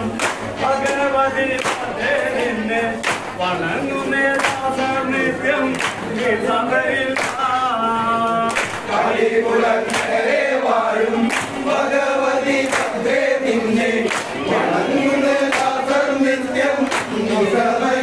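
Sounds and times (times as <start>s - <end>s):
hands clapping: 0.0s - 3.6s, 4.2s - 5.0s, 5.6s - 6.4s, 7.1s - 7.6s, 8.2s - 8.9s, 9.8s - 10.3s, 11.2s - 11.8s, 12.4s - 14.5s, 15.3s - 17.5s
group singing in unison: 0.0s - 18.0s.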